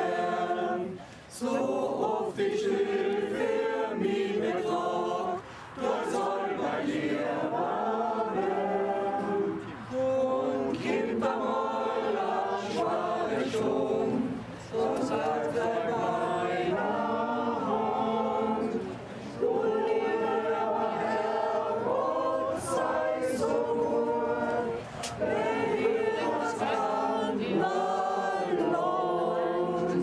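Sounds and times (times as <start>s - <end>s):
group singing a hymn: 0.0s - 30.0s.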